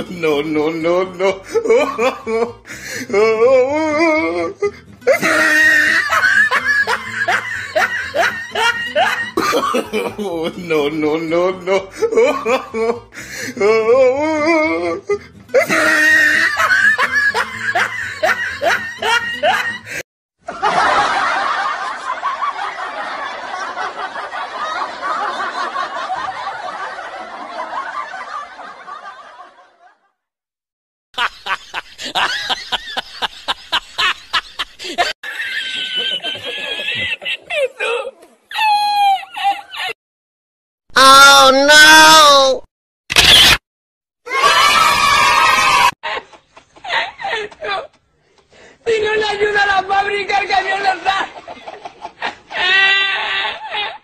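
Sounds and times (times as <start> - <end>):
person laughing: 0.0 - 20.0, 31.2 - 40.0, 46.0 - 48.0, 51.8 - 54.0.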